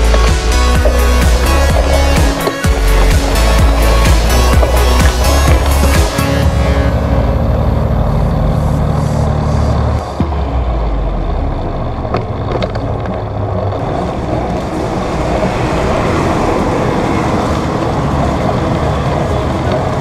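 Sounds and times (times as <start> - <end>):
bicycle rolling noise: 0.0 - 20.0
heavy low rumble: 0.0 - 20.0
wind rush: 13.8 - 20.0.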